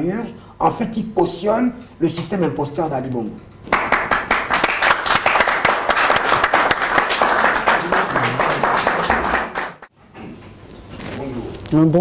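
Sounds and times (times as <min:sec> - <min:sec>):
audience applause: 0:03.7 - 0:09.9.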